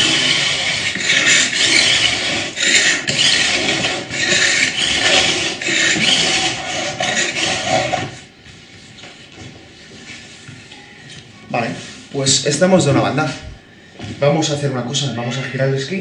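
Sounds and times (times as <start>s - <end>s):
metal file rasping on steel edge: 0.0s - 8.2s.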